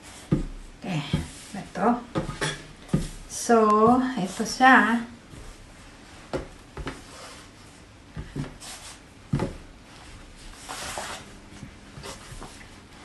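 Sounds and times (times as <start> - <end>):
fabric rubbing on table: 9.9 - 13.0.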